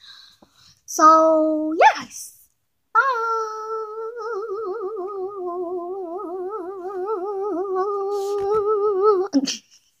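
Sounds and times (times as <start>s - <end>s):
girl singing long note: 3.0s - 9.3s.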